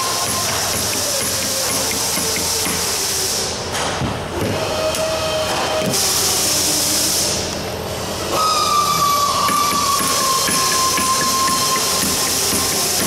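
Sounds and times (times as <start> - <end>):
workshop hiss: 0.0 - 13.0
mallet tapping on metal: 9.5 - 13.0.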